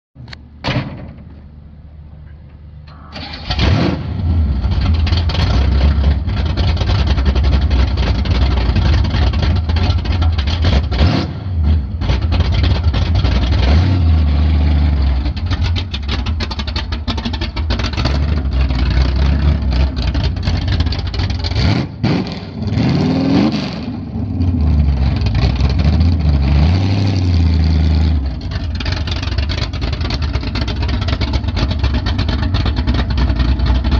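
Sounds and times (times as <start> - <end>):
engine cranking and starting: 2.9 - 11.1, 12.0 - 13.9, 14.8 - 21.7, 28.3 - 33.9
engine running and revving: 3.2 - 33.9.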